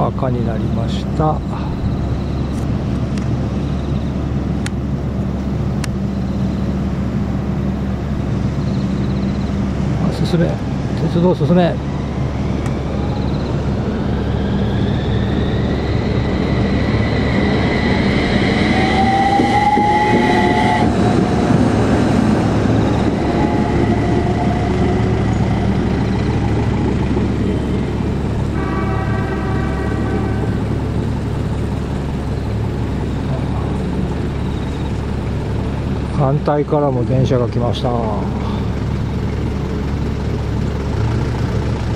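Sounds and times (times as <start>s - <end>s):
tram electric drive whine: 0.0s - 41.9s
low rumble: 11.6s - 41.9s
horn-like tone: 18.7s - 21.3s, 22.8s - 25.5s, 28.5s - 30.9s.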